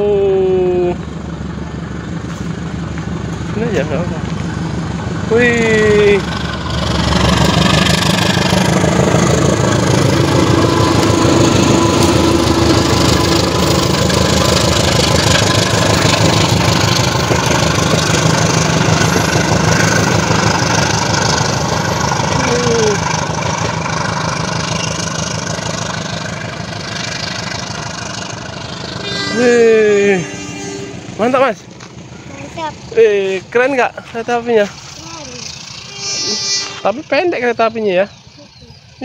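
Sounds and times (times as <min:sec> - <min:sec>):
diesel locomotive engine drone: 0:00.0 - 0:39.0
train wheels clattering on rails: 0:05.9 - 0:29.0.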